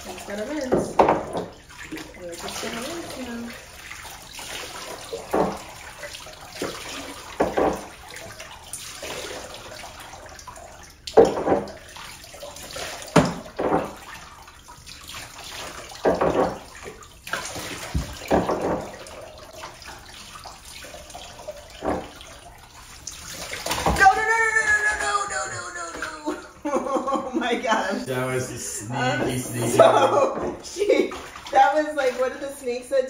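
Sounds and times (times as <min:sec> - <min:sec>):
faint steady water rush: 0:00.0 - 0:33.0
water splashing in a tub: 0:00.0 - 0:33.0.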